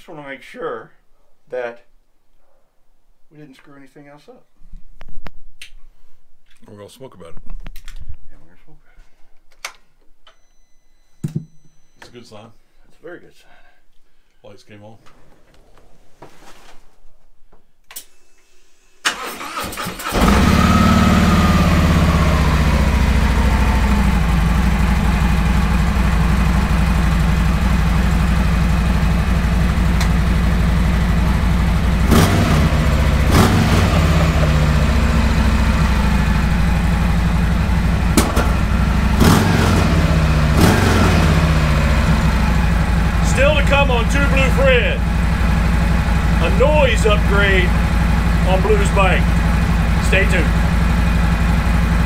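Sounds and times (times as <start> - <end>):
motorcycle engine starting: 19.0 - 52.0
motorcycle engine idling: 20.3 - 52.0.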